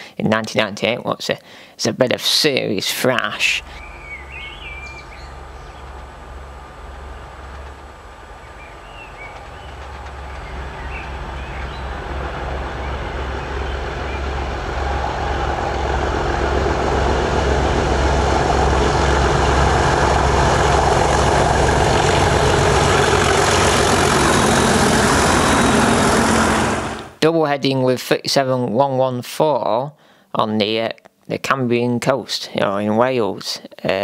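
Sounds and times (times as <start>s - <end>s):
diesel locomotive engines thrashing: 2.9s - 27.2s.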